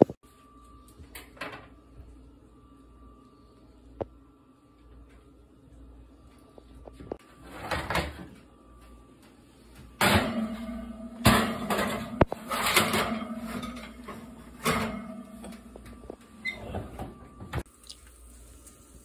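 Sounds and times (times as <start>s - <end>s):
metal baking sheet scraping on rack: 7.3s - 8.3s, 10.0s - 17.1s
oven door opening: 10.0s - 17.6s.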